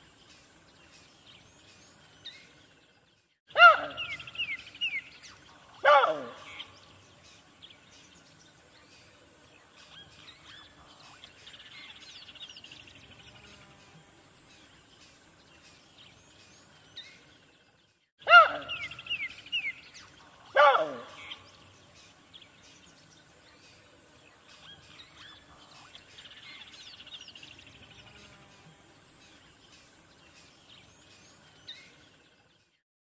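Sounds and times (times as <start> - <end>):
faint birds chirping: 0.0 - 32.8
loud animal cries: 3.5 - 4.2, 5.8 - 6.6, 18.2 - 18.9, 20.5 - 21.4.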